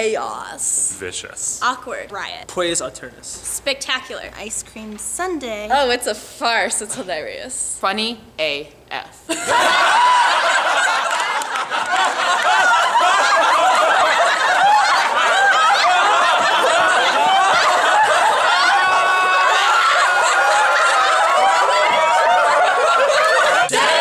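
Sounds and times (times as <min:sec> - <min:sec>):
group of people laughing: 0:09.3 - 0:24.0.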